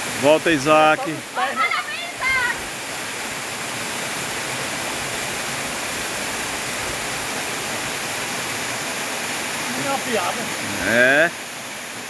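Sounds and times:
waterfall rushing: 0:00.0 - 0:12.0.

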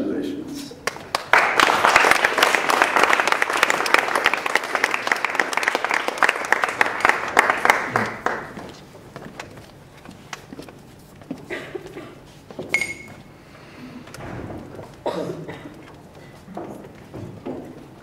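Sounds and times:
audience applauding: 0:00.8 - 0:09.0.

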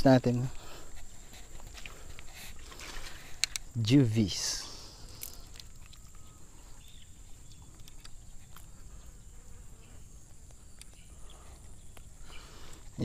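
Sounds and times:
faint clicks: 0:01.6 - 0:03.7, 0:10.3 - 0:12.9.

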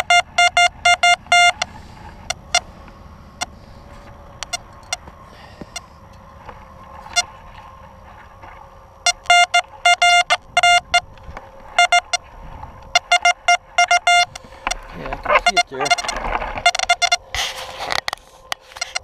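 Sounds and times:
metal detector short choppy beeps: 0:00.0 - 0:01.6, 0:04.4 - 0:05.0, 0:09.1 - 0:11.0, 0:11.8 - 0:12.2, 0:13.0 - 0:14.4, 0:15.3 - 0:17.2
rustling scrape: 0:14.3 - 0:19.0.

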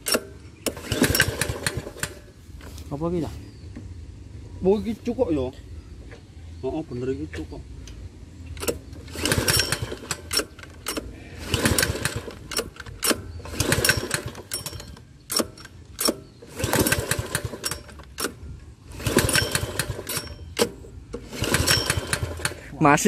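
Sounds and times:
lawn mower engine cranking and sputtering: 0:00.0 - 0:02.9, 0:08.4 - 0:23.0.

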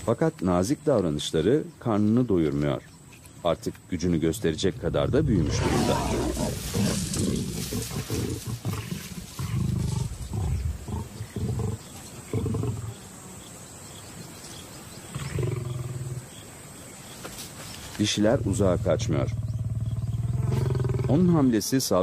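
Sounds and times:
lions growling and snarling: 0:04.3 - 0:13.2, 0:15.0 - 0:16.4, 0:18.2 - 0:21.5.

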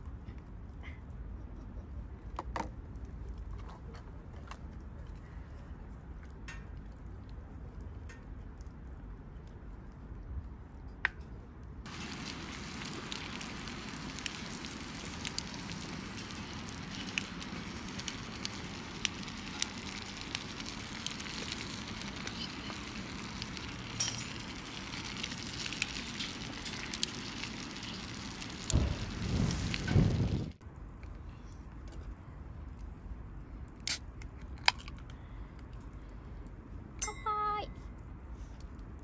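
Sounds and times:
campfire crackling and popping: 0:06.0 - 0:32.0
stew simmering: 0:11.8 - 0:30.6.

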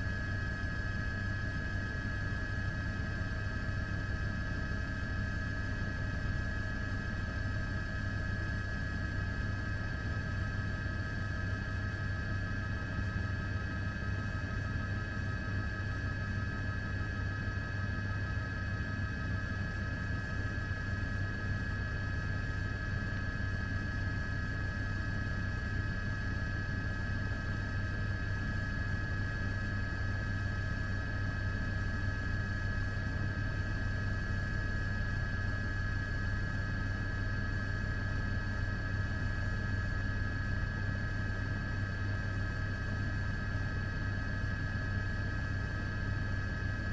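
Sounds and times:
helicopter engine and rotor drone: 0:00.0 - 0:46.9.

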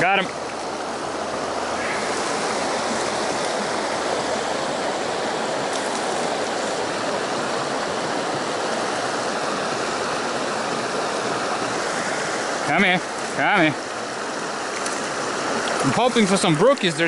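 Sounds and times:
creek water rushing over rocks: 0:00.0 - 0:17.0.

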